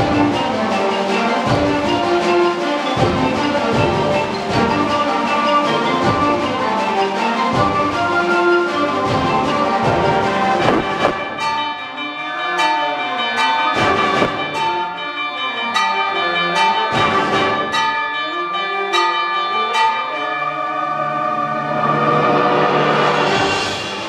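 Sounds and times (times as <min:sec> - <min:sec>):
concert band playing: 0:00.0 - 0:12.0, 0:13.6 - 0:15.0
bell-like strikes: 0:09.9 - 0:20.2.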